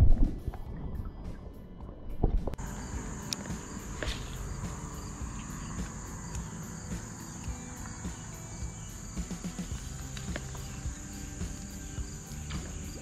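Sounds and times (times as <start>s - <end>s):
outdoor background noise: 0.0s - 13.0s
insect chorus chirring: 2.6s - 13.0s.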